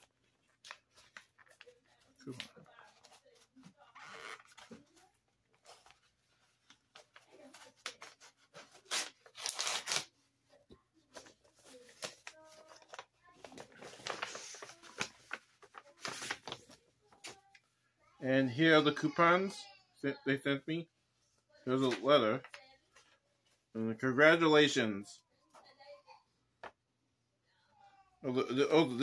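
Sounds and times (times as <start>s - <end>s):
packaging tearing and rustling: 7.1s - 10.1s, 11.6s - 16.7s.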